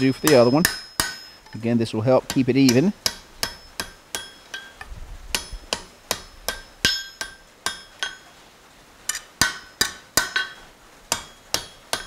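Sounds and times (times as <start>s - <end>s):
hammer ringing on anvil: 0.0s - 1.4s, 2.7s - 4.8s, 5.4s - 8.2s, 9.4s - 12.0s.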